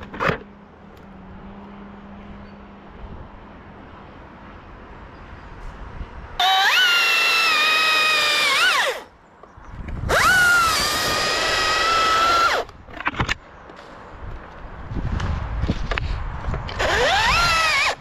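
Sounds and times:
power tool motor whining: 6.4 - 9.1, 10.1 - 12.7, 16.7 - 18.0.

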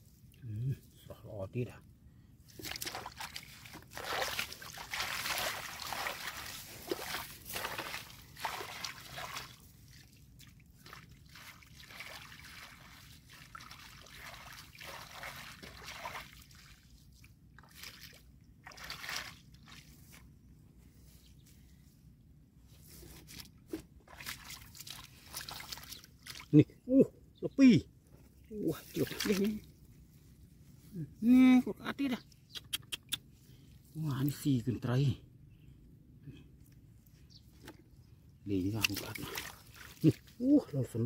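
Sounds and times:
shallow water sloshing and dripping: 2.4 - 20.5, 23.1 - 26.6, 28.2 - 30.2, 37.5 - 40.4.

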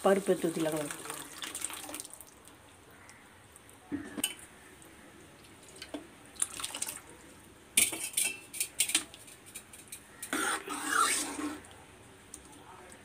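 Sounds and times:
metal ladle scraping a pan: 7.8 - 11.7.

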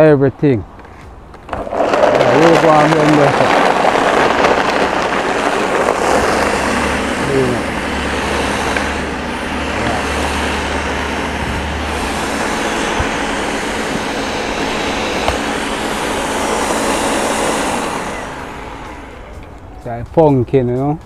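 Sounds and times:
blender motor running: 1.5 - 19.6.

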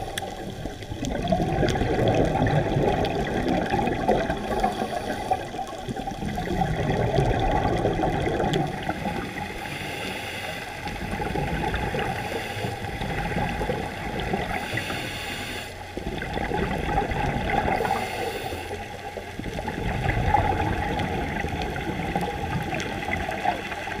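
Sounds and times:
gurgling exhaled bubbles: 0.0 - 9.8, 10.7 - 15.0, 15.7 - 24.0
regulator hissing inhalations: 4.5 - 5.6, 9.5 - 10.8, 12.2 - 12.9, 14.6 - 15.8, 17.8 - 18.9.

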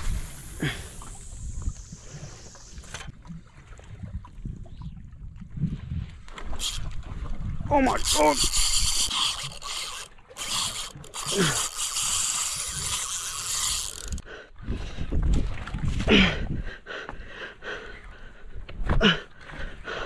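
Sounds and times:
fishing reel drag ratcheting: 0.0 - 3.1, 6.3 - 7.0, 7.7 - 14.3.

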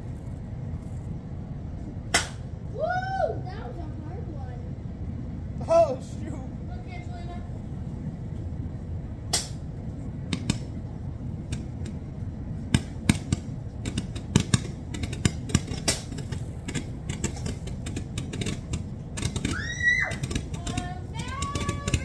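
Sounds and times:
low rumble: 0.0 - 22.0
sharp clicks and snaps: 9.3 - 9.6, 10.3 - 10.8, 12.7 - 22.0.

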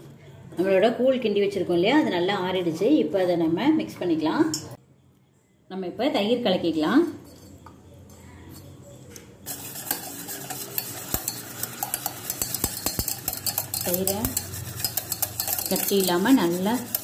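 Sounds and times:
whisk rattling against steel bowl: 9.5 - 17.0.

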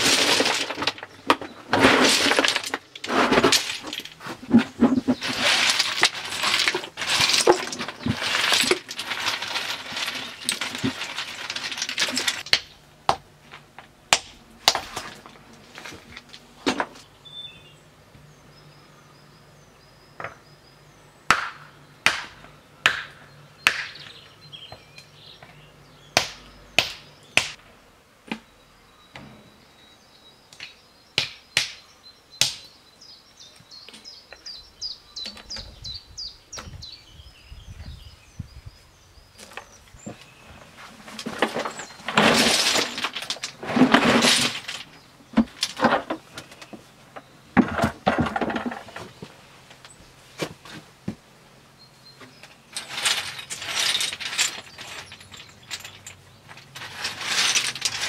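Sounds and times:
hard objects clattering: 0.0 - 12.7, 40.8 - 50.8, 52.3 - 58.0.

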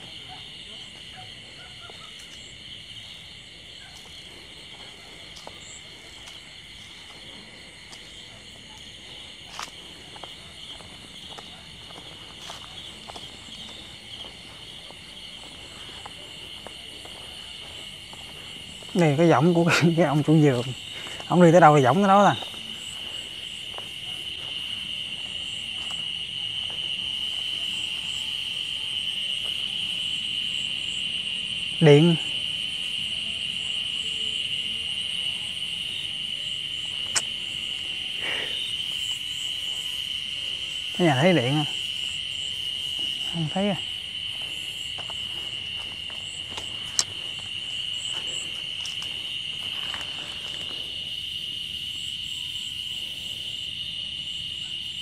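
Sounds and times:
night insects trilling: 0.0 - 55.0
sharp snap: 37.1 - 37.3.

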